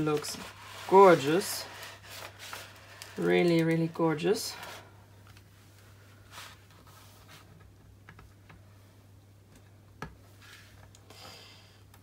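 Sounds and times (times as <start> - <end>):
fingers tapping plastic film: 2.2 - 4.0.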